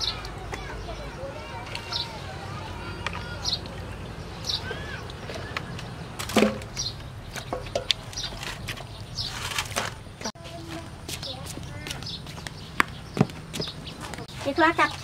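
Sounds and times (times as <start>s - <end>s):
meat knocking against metal basins: 4.6s - 8.8s.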